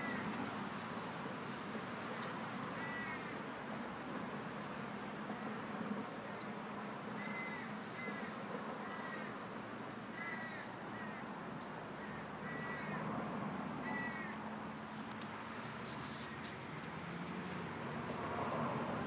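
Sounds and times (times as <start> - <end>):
short high animal calls: 2.8 - 3.3.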